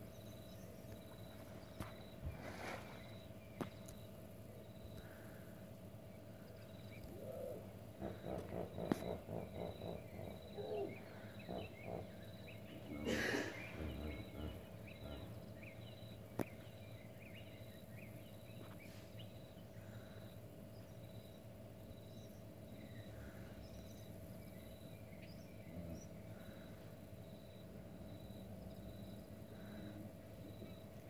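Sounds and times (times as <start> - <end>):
crickets chirring: 0.0 - 31.0
hippopotamus grunting honks: 7.9 - 15.4.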